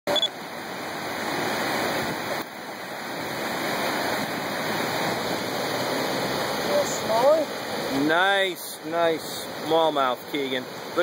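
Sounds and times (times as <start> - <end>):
river water pouring over a dam: 0.1 - 11.0.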